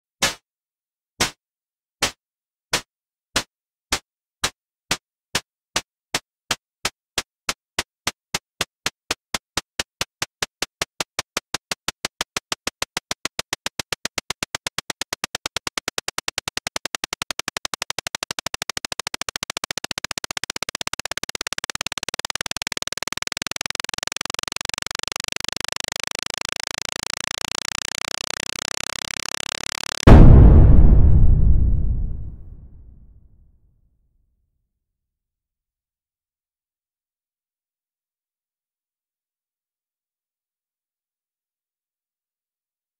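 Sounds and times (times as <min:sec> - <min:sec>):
electronic bomb ticking: 0:14.8 - 0:33.0.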